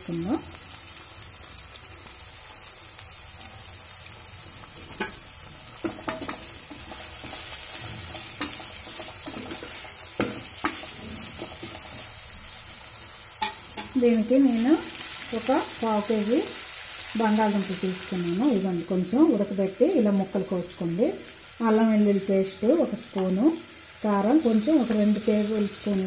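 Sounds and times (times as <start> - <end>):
onions sizzling in hot oil: 0.0 - 26.0
spoon scraping and knocking pot: 5.8 - 12.0.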